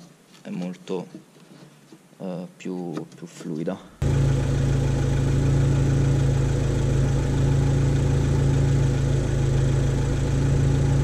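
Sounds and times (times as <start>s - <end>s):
car engine idling: 4.0s - 11.0s.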